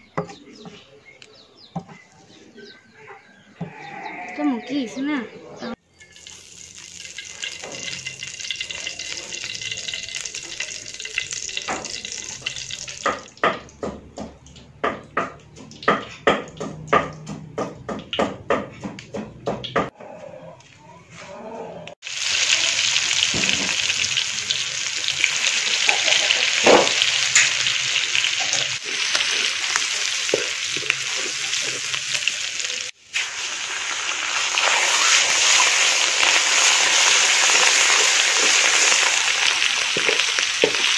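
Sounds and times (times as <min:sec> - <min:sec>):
oil sizzling in wok: 0:06.0 - 0:13.5, 0:22.0 - 0:40.9
meat frying sizzle: 0:06.1 - 0:13.6, 0:22.0 - 0:40.9.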